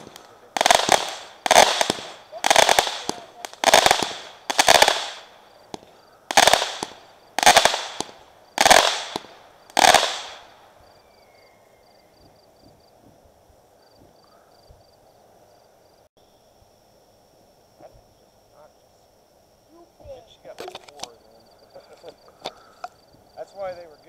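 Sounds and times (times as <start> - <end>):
fireworks bursting: 0.0 - 11.4.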